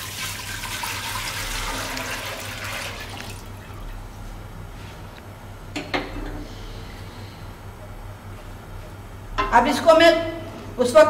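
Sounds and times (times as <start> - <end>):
milk pouring into a pot: 0.0 - 4.0.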